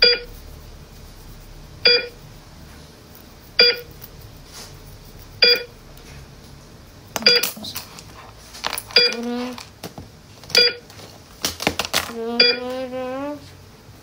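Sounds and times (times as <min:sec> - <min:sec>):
heart monitor beeping: 0:00.0 - 0:00.4, 0:01.8 - 0:02.2, 0:03.6 - 0:04.0, 0:05.4 - 0:05.8, 0:07.2 - 0:07.6, 0:08.9 - 0:09.6, 0:10.5 - 0:10.9, 0:12.3 - 0:13.0.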